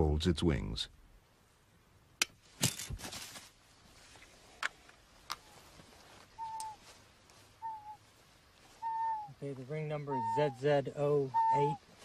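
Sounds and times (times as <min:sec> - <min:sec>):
whistled bird calls: 0:06.4 - 0:06.8, 0:07.6 - 0:08.0, 0:08.8 - 0:11.8.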